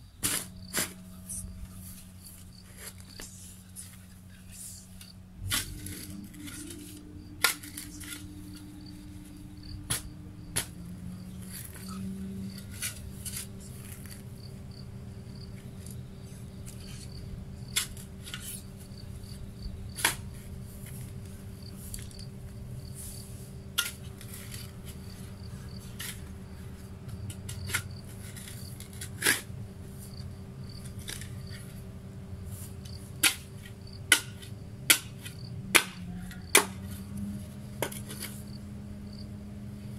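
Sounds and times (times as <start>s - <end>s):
insects chirping: 0.0s - 39.9s
steady low hum: 0.0s - 39.9s
shovel scraping stony soil: 0.2s - 4.0s, 5.0s - 10.8s, 11.4s - 14.3s, 27.2s - 30.1s.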